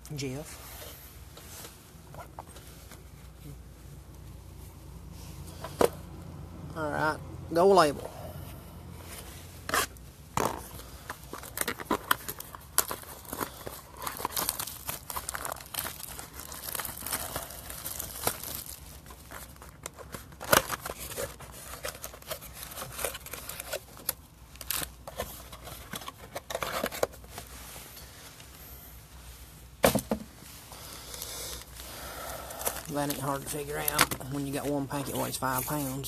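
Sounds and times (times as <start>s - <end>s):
packaging tearing and crinkling: 9.7s - 27.3s, 30.9s - 34.5s.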